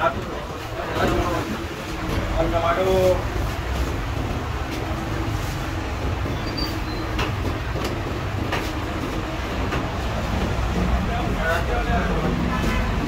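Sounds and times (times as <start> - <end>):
busy street rumble: 0.0 - 13.0
sharp clicks and knocks: 5.9 - 11.0.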